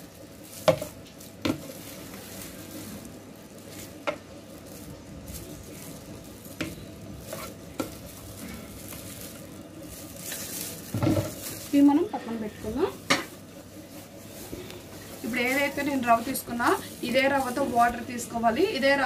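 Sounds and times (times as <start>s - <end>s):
spoon stirring nuts in bowl: 0.0s - 3.0s, 3.6s - 11.9s.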